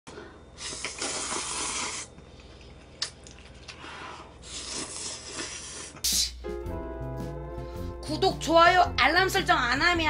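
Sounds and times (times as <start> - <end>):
person slurping noodles: 0.5 - 2.2, 3.8 - 6.4.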